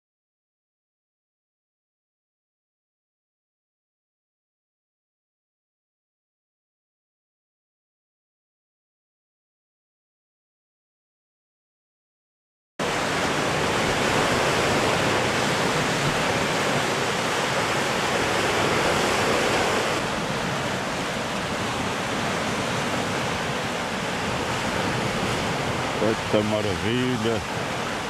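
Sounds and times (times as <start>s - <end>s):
surf breaking against rocks: 12.8s - 28.0s.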